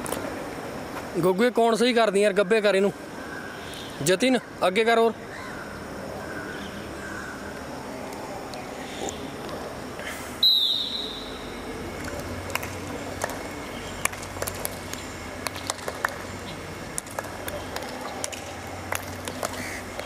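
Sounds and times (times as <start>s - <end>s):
short high whistle: 10.4s - 11.4s
people clapping hands: 12.0s - 20.0s.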